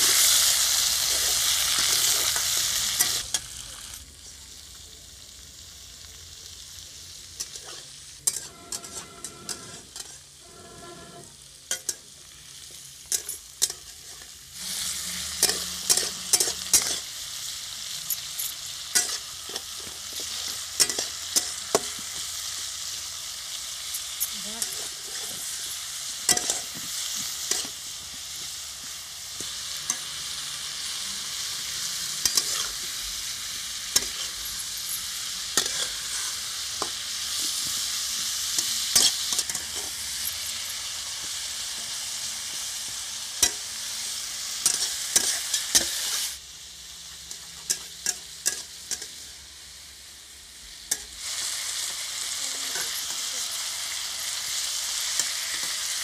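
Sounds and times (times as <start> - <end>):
food sizzling in hot oil: 0.0 - 56.0
metal spatula scraping pan: 7.4 - 12.0, 13.1 - 17.2, 18.8 - 22.2, 23.9 - 27.8, 30.9 - 41.0.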